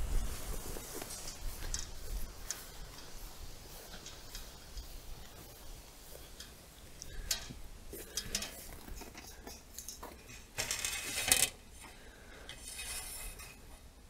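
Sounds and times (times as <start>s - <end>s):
wire cage clicking and clinking: 6.2s - 11.6s
metal rattling scrape: 7.2s - 13.8s.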